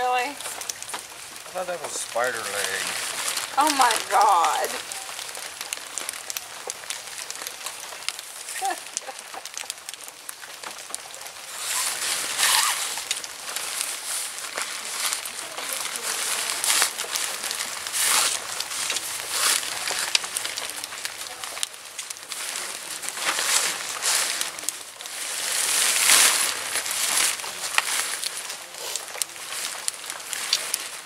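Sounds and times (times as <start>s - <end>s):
tent fabric rustling: 11.5s - 21.4s, 22.3s - 31.0s.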